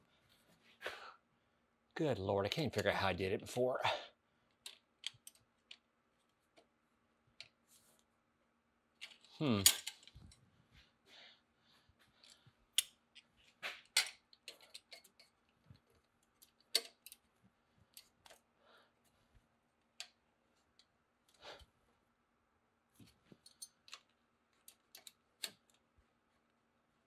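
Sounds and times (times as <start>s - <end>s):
pliers clicking on metal clamp: 16.0s - 17.2s.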